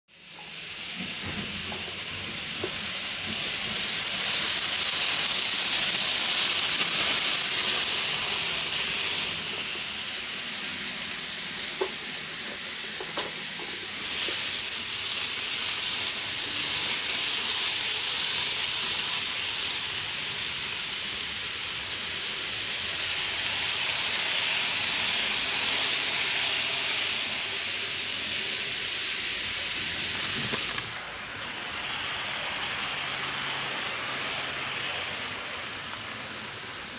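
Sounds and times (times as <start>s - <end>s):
model trains running on track: 0.1s - 36.9s.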